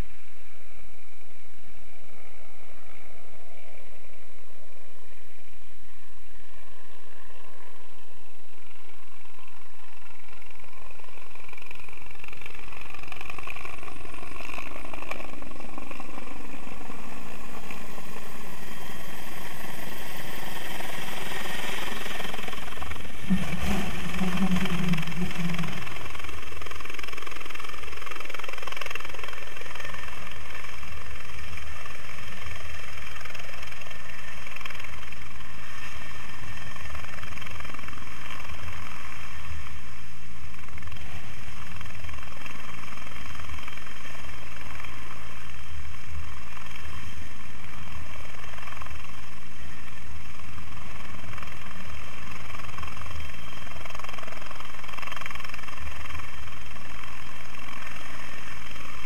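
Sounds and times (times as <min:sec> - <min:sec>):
helicopter whine: 0:00.0 - 0:59.0
helicopter rotor beat: 0:06.4 - 0:59.0.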